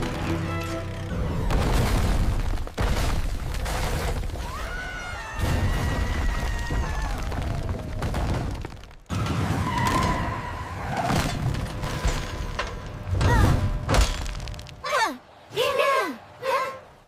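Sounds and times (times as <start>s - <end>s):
music: 0.0s - 1.6s
cartoon bricks collapsing: 1.3s - 12.4s.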